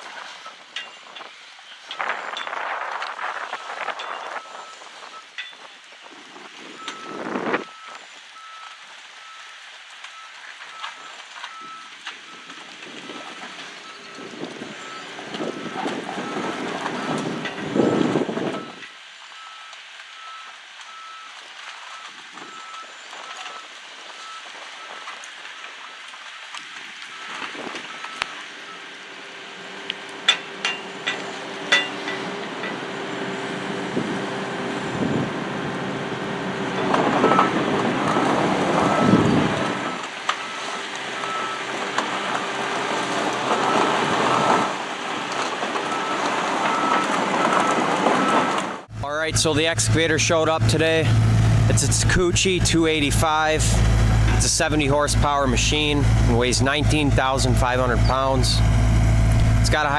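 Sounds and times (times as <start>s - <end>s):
excavator diesel engine running: 11.6s - 18.8s, 29.4s - 59.9s
travel alarm beeping: 38.8s - 39.4s.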